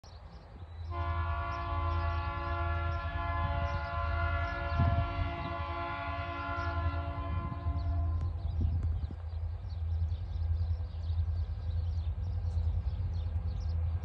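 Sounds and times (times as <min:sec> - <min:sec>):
locomotive air horn blast: 0:00.9 - 0:08.4.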